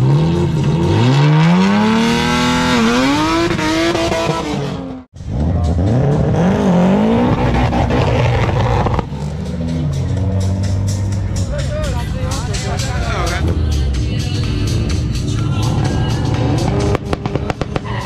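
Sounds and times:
car engine revving hard: 0:00.0 - 0:10.7.

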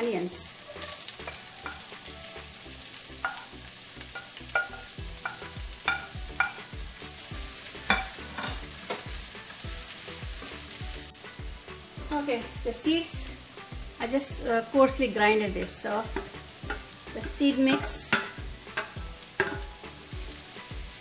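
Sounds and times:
onions sizzling in hot oil: 0:00.0 - 0:21.0
wooden spoon knocking on pan: 0:03.2 - 0:03.5, 0:04.2 - 0:06.8, 0:07.9 - 0:09.1, 0:15.5 - 0:19.8.

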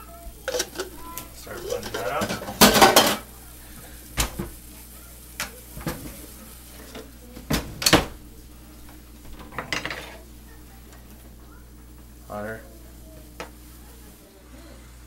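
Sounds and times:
kitchen utensils clinking and knocking: 0:00.4 - 0:03.3, 0:08.8 - 0:10.3.

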